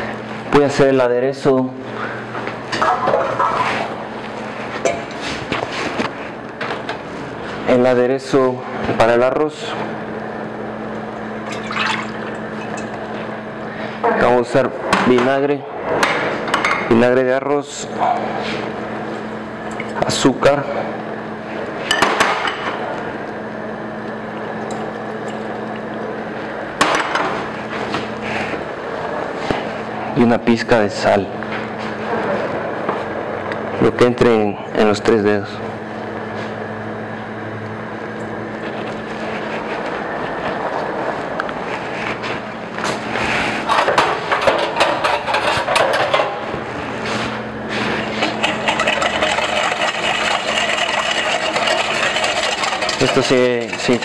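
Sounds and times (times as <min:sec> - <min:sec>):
steady low hum: 0:00.0 - 0:54.0
kitchen utensils clattering: 0:43.7 - 0:46.4, 0:48.1 - 0:54.0
whisk beating in metal bowl: 0:48.0 - 0:54.0
pot of rice boiling: 0:48.2 - 0:54.0.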